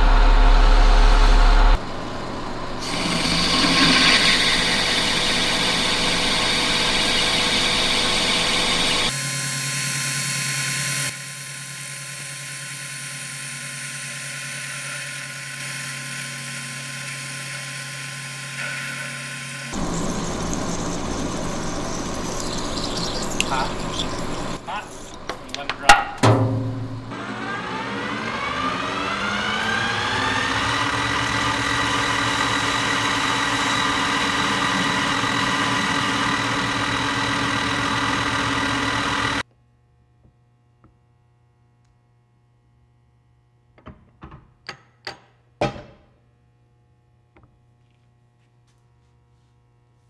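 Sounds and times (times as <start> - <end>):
electric motor whine: 0.0 - 25.3, 27.1 - 39.4.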